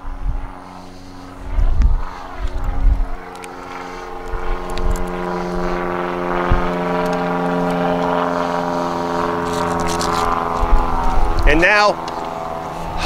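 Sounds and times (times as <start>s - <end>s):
steady engine-like drone: 0.0s - 13.0s.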